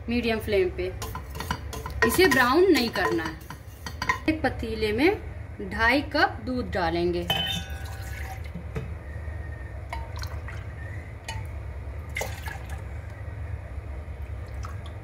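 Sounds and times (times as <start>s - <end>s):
cup clinking against pot: 7.3s - 8.9s.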